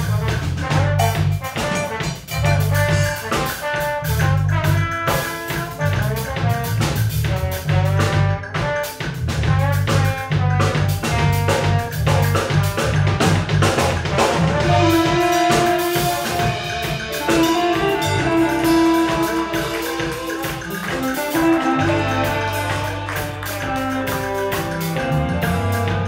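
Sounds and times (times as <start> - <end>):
bass line: 0.0 - 26.0
drum kit and hand drums: 0.0 - 26.0
guitar: 13.2 - 26.0
long held melody notes: 16.2 - 26.0.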